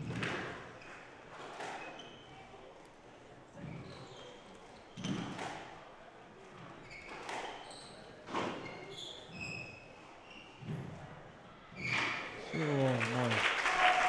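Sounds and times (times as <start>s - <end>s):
squash ball hitting rackets and walls: 0.0s - 2.0s, 5.0s - 5.7s, 8.2s - 8.7s
shoes squeaking on wooden floor: 3.6s - 5.5s, 6.7s - 11.0s.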